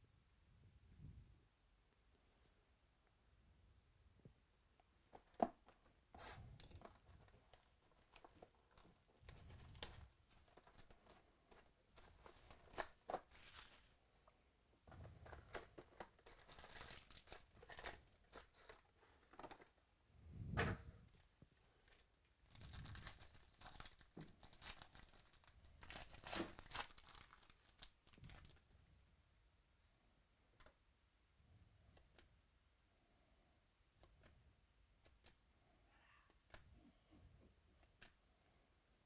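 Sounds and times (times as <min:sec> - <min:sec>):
plastic wrap crinkling and tearing: 0:06.2 - 0:14.0, 0:15.2 - 0:18.9, 0:21.8 - 0:28.7.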